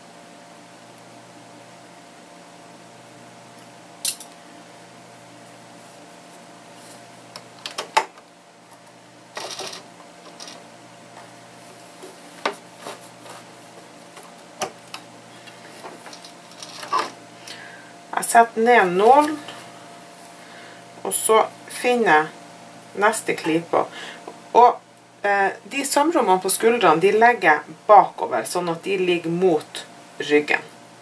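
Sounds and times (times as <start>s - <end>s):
faint steady hum: 0.0s - 31.0s
cloth rustling: 11.5s - 14.5s.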